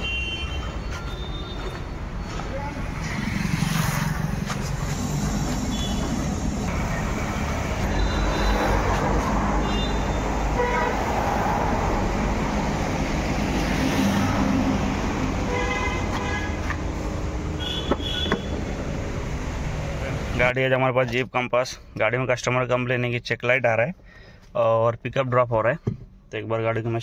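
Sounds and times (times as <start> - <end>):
car horn toot: 0.0 - 1.8, 5.7 - 6.9, 7.8 - 8.9, 9.6 - 11.0, 15.5 - 16.7, 17.6 - 18.6
road traffic noise: 0.0 - 22.5, 23.9 - 24.6.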